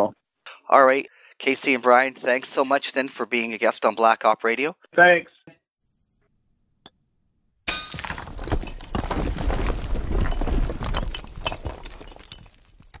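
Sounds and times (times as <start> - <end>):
falling rubble clatter: 7.7 - 13.0
stone cracking and crumbling: 7.7 - 13.0.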